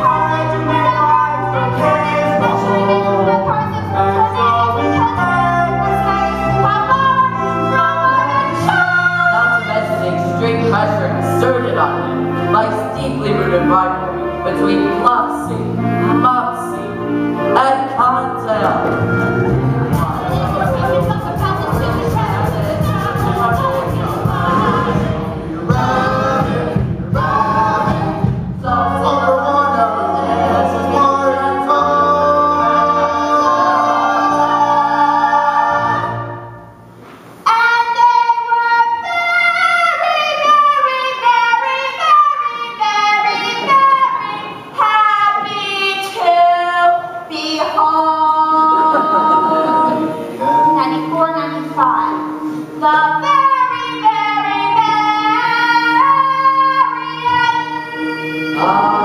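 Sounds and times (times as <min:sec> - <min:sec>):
small pit band playing: 0:00.0 - 0:38.2
cast voices singing: 0:19.9 - 0:36.4, 0:37.4 - 0:59.0.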